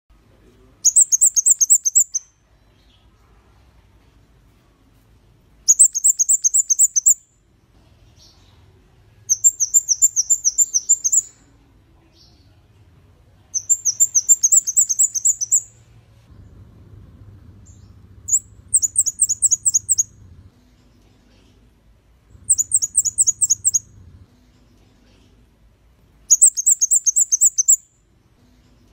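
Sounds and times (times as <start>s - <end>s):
bird singing high-pitched notes: 0.8s - 2.4s, 5.7s - 7.3s, 9.3s - 11.4s, 13.5s - 15.8s, 17.6s - 20.2s, 22.4s - 24.0s, 26.3s - 28.0s.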